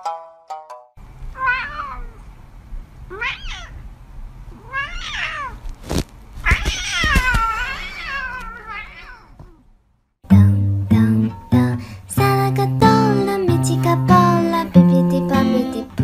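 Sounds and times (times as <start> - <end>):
cat meowing: 1.3 - 2.2, 3.1 - 3.8, 4.5 - 5.7, 6.4 - 9.6.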